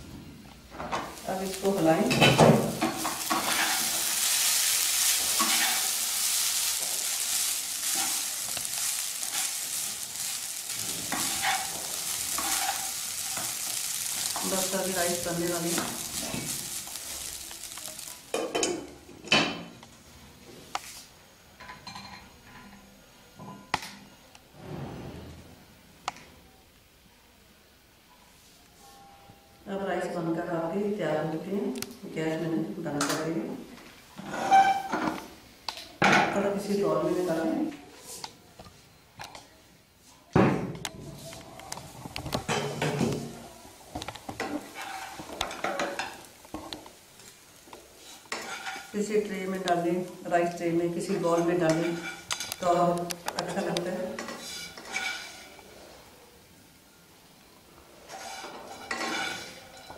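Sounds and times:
metal spoon scraping pan: 1.4s - 17.8s, 44.4s - 46.2s, 48.1s - 49.0s, 51.3s - 52.8s, 54.2s - 55.6s, 58.1s - 59.9s
dishes clinking: 18.3s - 19.8s, 21.6s - 22.8s, 58.4s - 59.9s.

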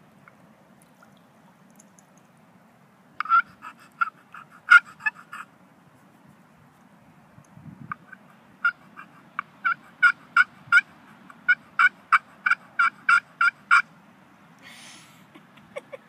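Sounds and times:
turkey call yelps: 3.2s - 5.5s, 7.9s - 13.9s.

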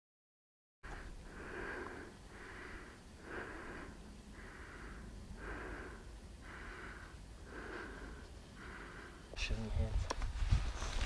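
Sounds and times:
person breathing hard: 0.9s - 9.3s.

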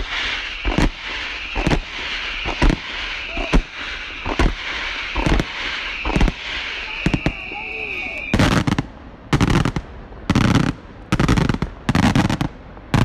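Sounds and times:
firework fountains hissing: 0.0s - 13.0s
firework shells bursting: 0.6s - 8.9s.

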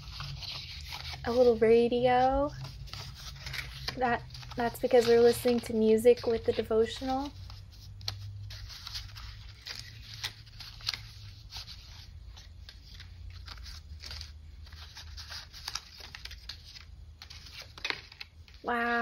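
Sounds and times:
paper pieces rustling: 0.0s - 18.6s.

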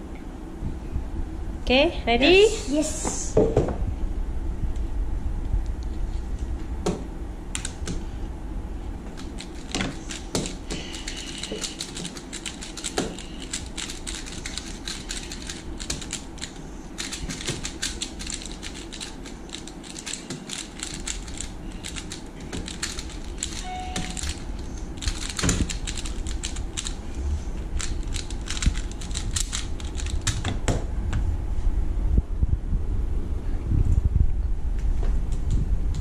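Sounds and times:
plastic puzzle cube clicking: 9.4s - 24.4s, 25.0s - 27.0s, 27.8s - 30.4s.

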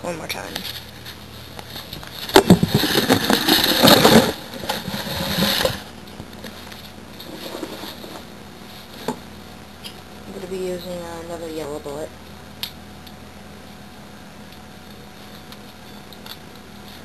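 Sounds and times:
camera handling rubbing and knocking: 2.0s - 5.8s.

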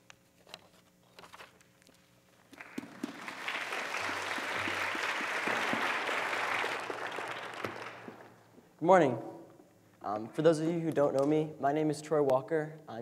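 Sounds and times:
congregation applauding: 2.5s - 8.6s.

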